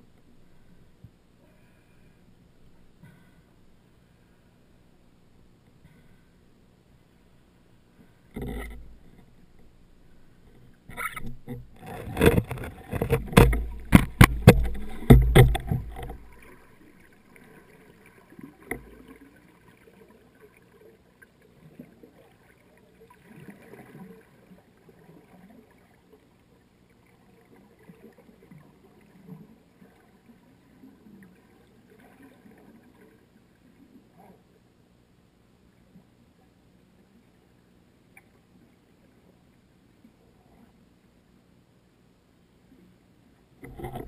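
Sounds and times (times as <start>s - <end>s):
low water noise: 0.0s - 44.0s
underwater knocking: 10.9s - 16.6s.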